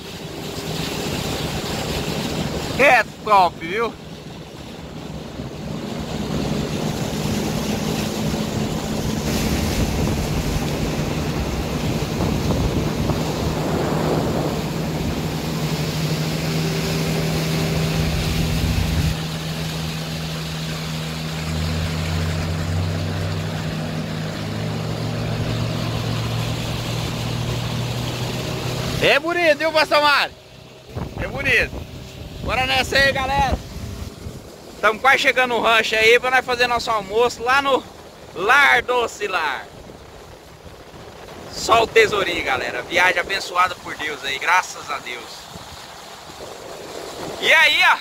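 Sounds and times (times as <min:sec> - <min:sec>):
outboard motors humming: 0:00.0 - 0:48.0
water rushing past hull: 0:00.0 - 0:48.0
wind on microphone: 0:04.4 - 0:20.2, 0:30.7 - 0:34.8, 0:39.6 - 0:44.1, 0:45.1 - 0:48.0.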